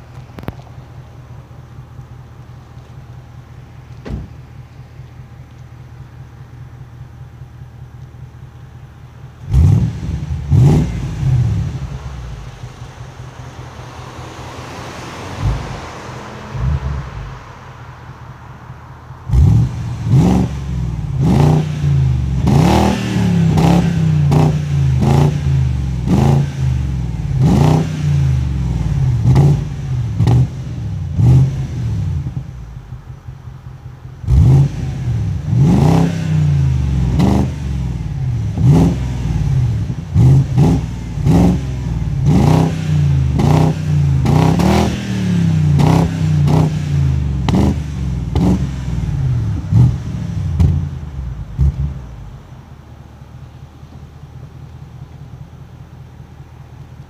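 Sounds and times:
engine idling: 0.0s - 14.4s, 28.5s - 35.8s, 48.1s - 57.0s
car engine revving: 0.0s - 57.0s.

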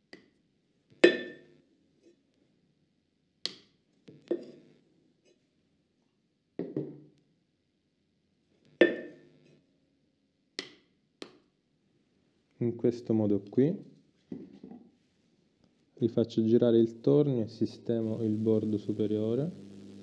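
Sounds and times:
wooden stick knocking clay cup: 8.8s - 9.2s.

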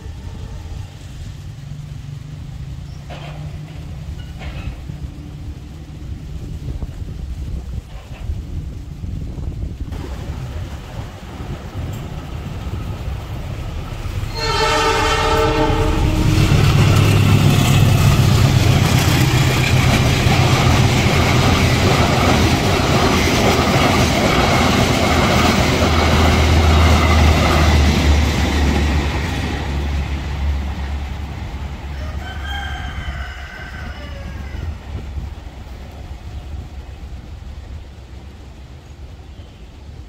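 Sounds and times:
locomotive engine rumble: 0.0s - 40.0s
train wheels clacking on rails: 1.8s - 6.0s, 7.6s - 8.7s, 11.7s - 31.9s
train horn blast: 14.2s - 18.6s.

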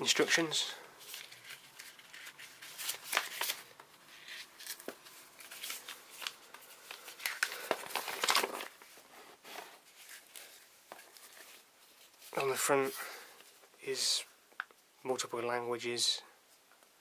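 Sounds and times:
paper rustling and crinkling: 0.2s - 13.6s.

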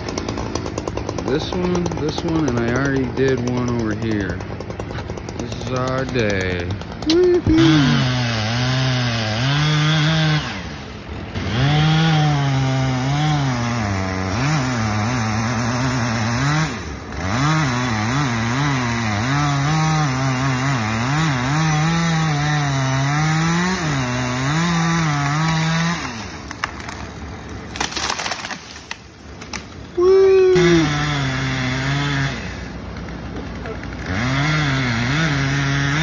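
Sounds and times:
chainsaw cutting wood: 0.0s - 36.0s
tree cracking and crashing down: 24.4s - 31.2s.

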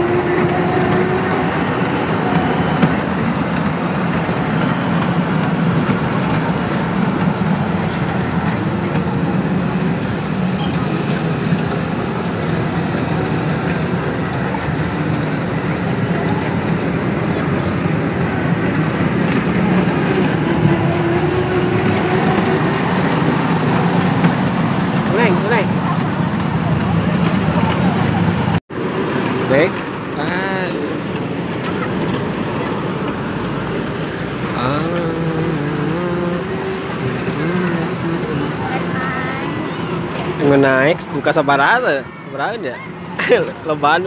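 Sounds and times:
faint voices: 0.0s - 44.0s
train wheels rolling on rails: 0.0s - 44.0s.

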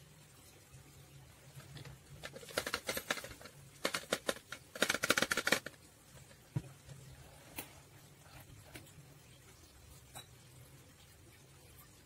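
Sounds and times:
powder rattling in plastic bottle: 1.7s - 5.8s.

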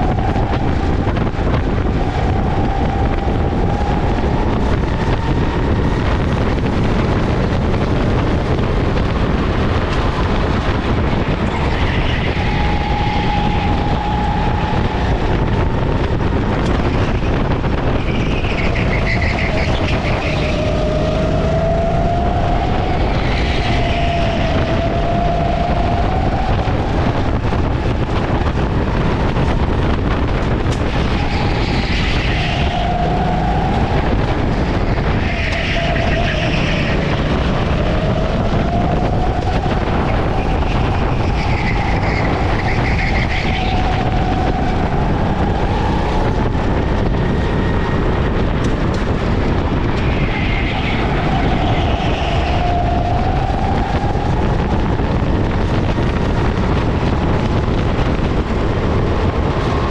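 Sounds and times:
kart engine accelerating and slowing: 0.0s - 59.9s
wind noise on microphone: 0.0s - 59.9s.

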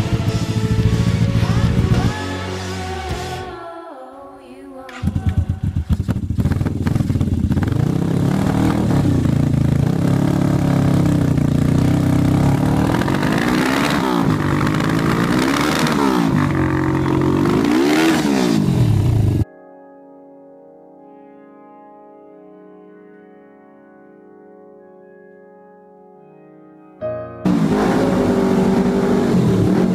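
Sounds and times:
motorcycle engine idling and revving: 0.0s - 2.1s, 4.9s - 19.4s, 27.5s - 29.9s.

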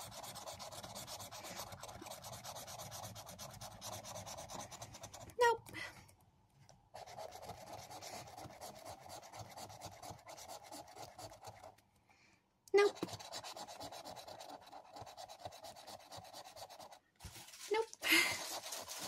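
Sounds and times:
scratchcard being scratched: 0.0s - 5.4s, 7.0s - 11.7s, 12.8s - 17.0s, 18.3s - 19.0s.

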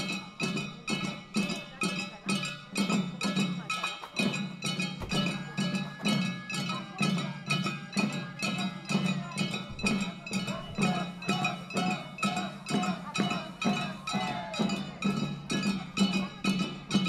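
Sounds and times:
voices chanting: 0.0s - 17.0s
small drums thudding: 4.2s - 6.2s, 9.5s - 11.2s.

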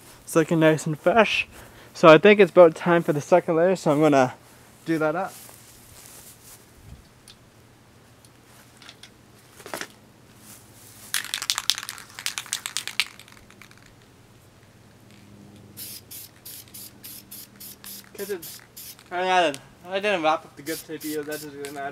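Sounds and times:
spray can rattling: 11.0s - 14.1s, 15.8s - 19.2s, 20.6s - 21.9s.

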